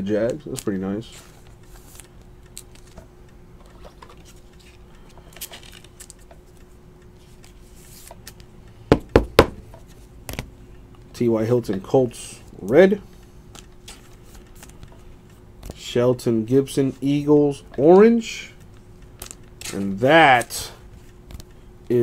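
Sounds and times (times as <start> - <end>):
trading cards rustling: 0.0 - 8.5, 12.6 - 21.7
faint steady hum: 0.0 - 22.0.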